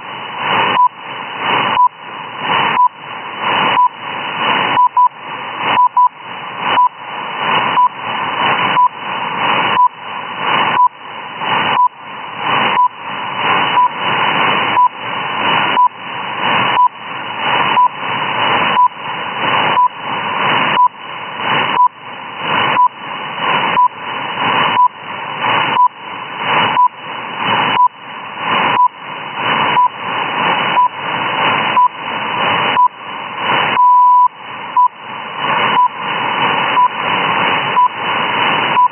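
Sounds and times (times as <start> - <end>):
rushing radio hiss: 0.0 - 38.9
short radio beeps: 3.7 - 4.0, 4.8 - 7.0, 11.7 - 12.0, 29.7 - 30.0, 30.7 - 31.0, 32.7 - 33.0, 33.7 - 35.0, 35.7 - 36.0, 36.7 - 37.0, 37.8 - 38.0.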